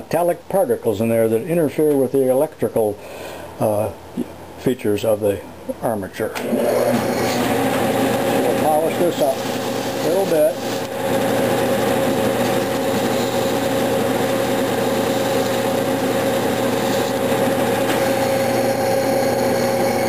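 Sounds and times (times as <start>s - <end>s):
metal lathe whining and humming: 6.4s - 20.0s
sandpaper against spinning metal: 9.0s - 10.8s, 12.7s - 13.7s, 14.8s - 15.6s, 16.6s - 17.2s.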